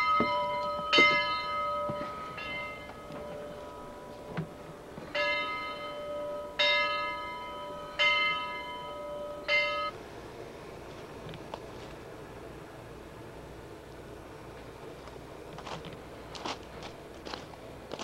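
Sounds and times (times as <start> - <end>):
locomotive bell ringing: 0.0 - 10.1.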